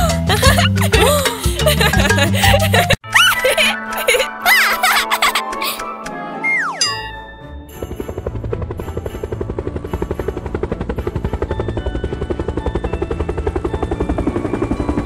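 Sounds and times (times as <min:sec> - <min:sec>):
cartoon propeller plane engine: 0:06.4 - 0:15.0.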